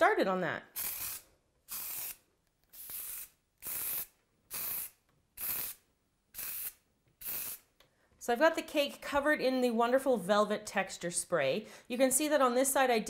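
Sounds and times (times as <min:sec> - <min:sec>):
aerosol spray hissing: 0:00.8 - 0:02.2, 0:02.8 - 0:05.8, 0:06.4 - 0:07.6.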